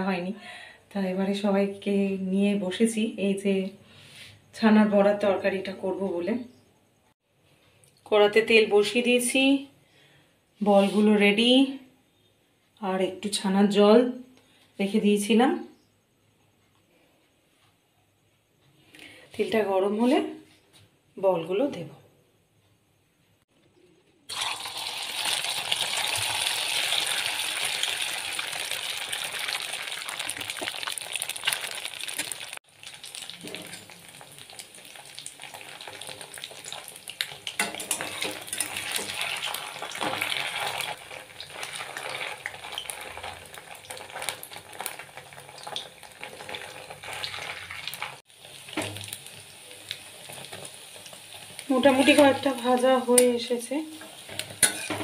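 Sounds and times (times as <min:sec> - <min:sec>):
balls sizzling in hot oil: 0:24.3 - 0:55.0
spatula clicking and scraping: 0:37.4 - 0:40.9, 0:54.3 - 0:55.0.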